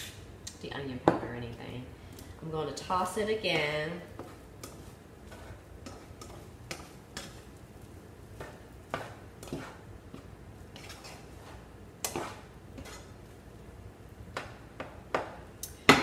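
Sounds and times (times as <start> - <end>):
spatula scraping frying pan: 4.1 - 13.4.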